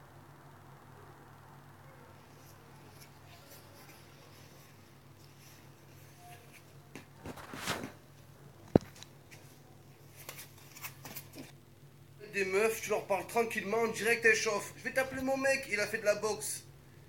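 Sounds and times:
faint low hum: 0:00.0 - 0:17.0
rustling of gloves: 0:02.2 - 0:11.5.

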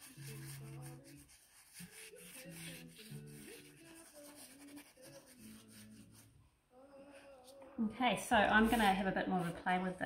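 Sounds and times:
plant rubbed on paper: 0:00.0 - 0:06.3, 0:08.3 - 0:09.8
soft background music: 0:00.0 - 0:10.0.

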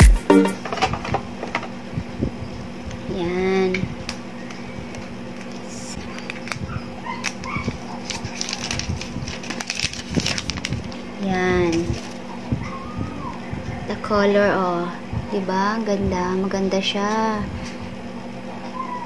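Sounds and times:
cardboard box and plastic handling: 0:07.2 - 0:11.0.

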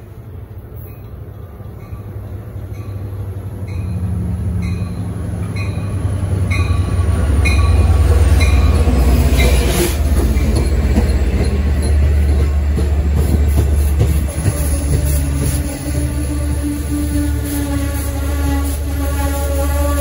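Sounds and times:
diesel locomotive rumble: 0:00.0 - 0:20.0
locomotive bell ringing: 0:00.8 - 0:13.4
coach wheels rattling over rails: 0:01.0 - 0:20.0.

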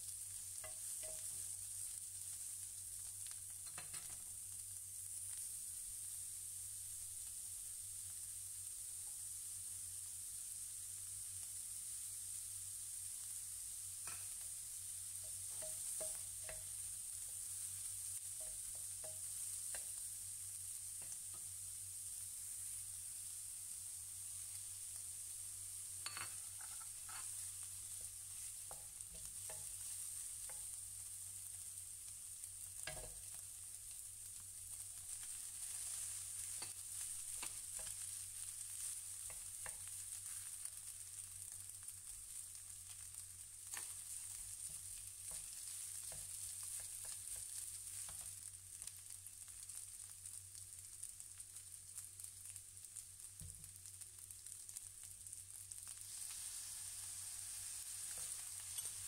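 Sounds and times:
rice sizzling in a frying pan: 0:00.0 - 0:59.0
wooden spatula scraping pan: 0:26.5 - 0:27.4.

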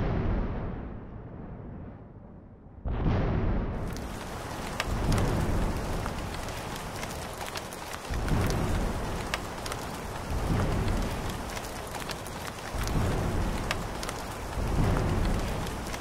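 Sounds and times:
thunder rumbles: 0:00.0 - 0:16.0
steady rain: 0:03.8 - 0:16.0.

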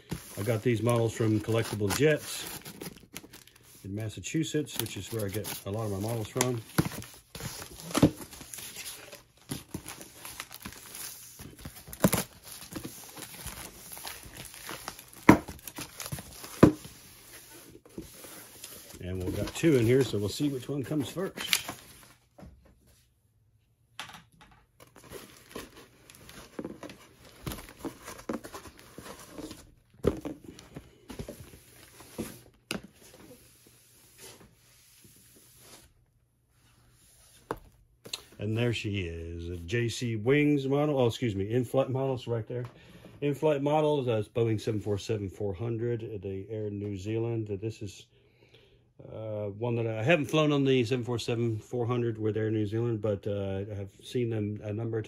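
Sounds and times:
tape and cardboard rustling: 0:00.0 - 0:03.8, 0:04.6 - 0:22.2, 0:24.8 - 0:36.0.

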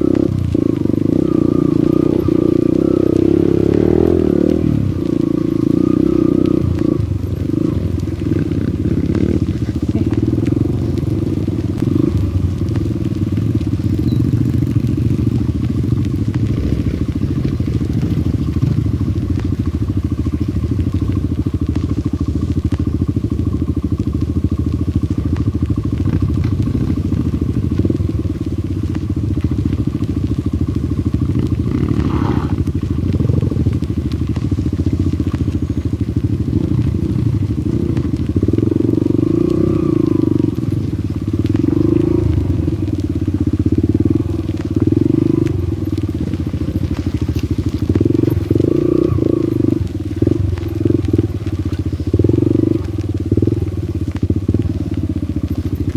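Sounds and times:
motorcycle engine running: 0:00.0 - 0:55.9.

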